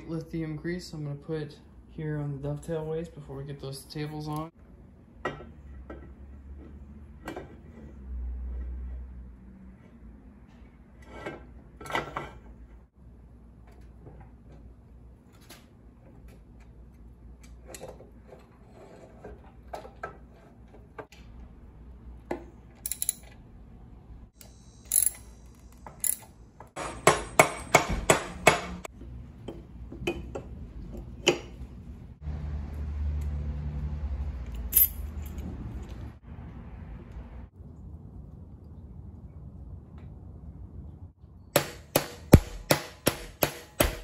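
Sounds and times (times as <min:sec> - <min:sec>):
metal parts clinking and knocking: 0:22.7 - 0:23.5, 0:24.8 - 0:27.8, 0:34.5 - 0:35.5.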